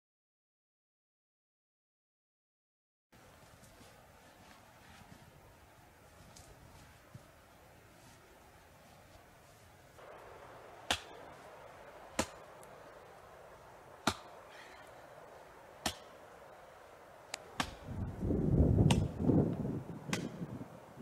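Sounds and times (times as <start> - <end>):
rustling noise: 3.2 - 19.7
axe chopping wood: 10.8 - 11.2, 12.1 - 12.4, 14.0 - 14.4, 15.8 - 16.2, 17.5 - 17.9, 18.8 - 19.1, 20.1 - 20.4.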